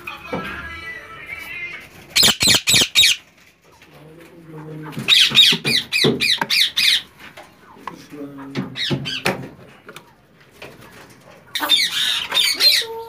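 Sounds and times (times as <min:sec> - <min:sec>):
parakeets screeching: 0:02.2 - 0:03.3, 0:05.1 - 0:07.2, 0:08.8 - 0:09.3, 0:11.5 - 0:13.0.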